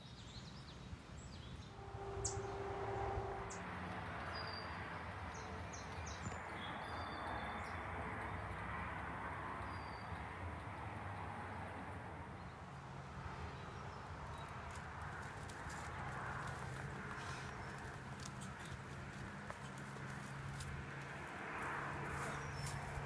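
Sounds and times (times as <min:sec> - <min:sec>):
songbird chirps: 0:00.0 - 0:08.5, 0:22.1 - 0:23.0
low hum: 0:01.7 - 0:04.4.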